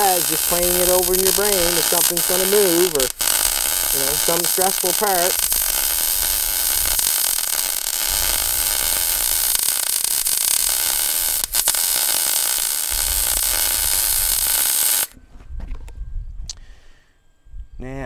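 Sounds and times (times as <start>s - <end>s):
shop equipment hissing: 0.0s - 11.4s.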